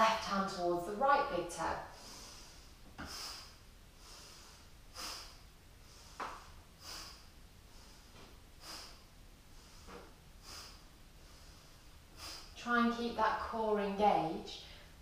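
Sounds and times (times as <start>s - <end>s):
woman breathing: 1.8s - 12.6s, 14.6s - 15.0s.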